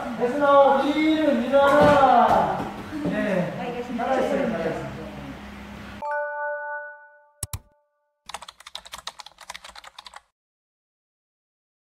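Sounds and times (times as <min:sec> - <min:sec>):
multi-tone chime: 0:06.0 - 0:07.4
rapid keyboard typing clicks: 0:07.4 - 0:07.7, 0:08.3 - 0:10.3.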